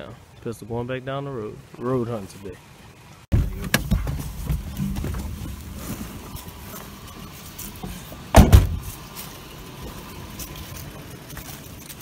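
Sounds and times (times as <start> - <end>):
truck door slamming: 3.3 - 5.6, 8.3 - 8.9.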